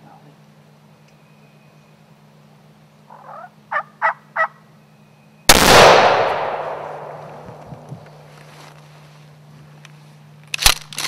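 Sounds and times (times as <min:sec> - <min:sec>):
turkey clucks: 0:03.1 - 0:04.6
shotgun blast echoing: 0:05.5 - 0:07.6.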